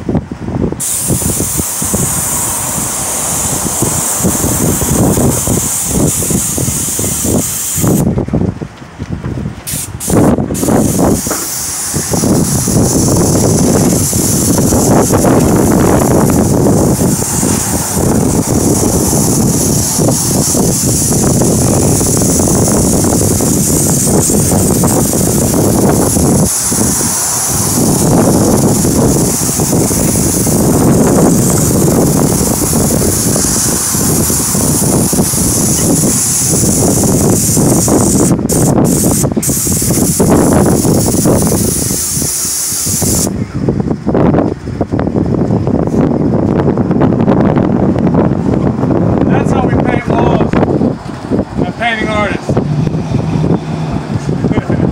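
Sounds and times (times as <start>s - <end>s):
wind rumble on microphone: 0.0s - 54.9s
paint spray gun hissing: 0.8s - 8.1s, 9.7s - 43.4s.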